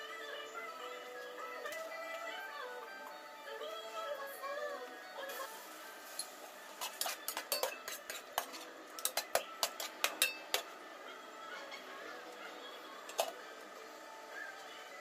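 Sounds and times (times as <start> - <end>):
metal spoon scraping metal pot: 6.2 - 10.7, 13.1 - 13.4.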